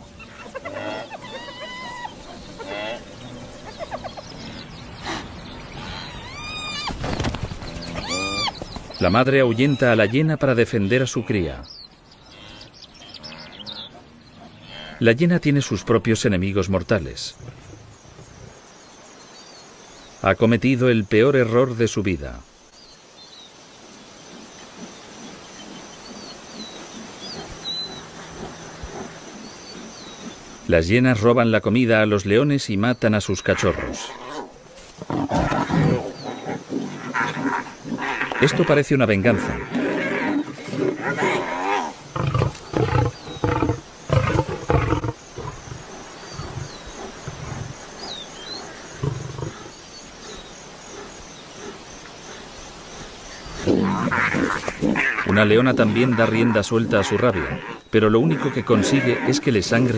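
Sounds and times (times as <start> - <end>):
lions snarling and roaring: 24.2 - 30.7, 33.5 - 59.9
high insect drone: 33.7 - 59.9.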